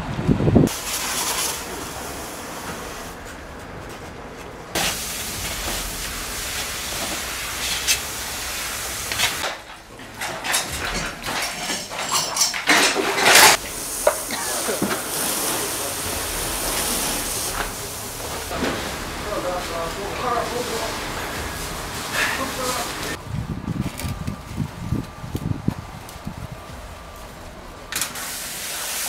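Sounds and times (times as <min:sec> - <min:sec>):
fire hose water hissing: 0:00.6 - 0:03.2, 0:04.7 - 0:10.0, 0:10.6 - 0:23.2, 0:25.3 - 0:29.0
debris and metal clattering: 0:09.0 - 0:23.2.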